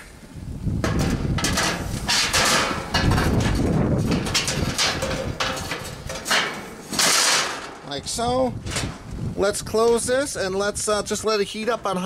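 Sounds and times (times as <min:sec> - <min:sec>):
metal grates clanking: 0:00.8 - 0:08.0, 0:08.6 - 0:09.0.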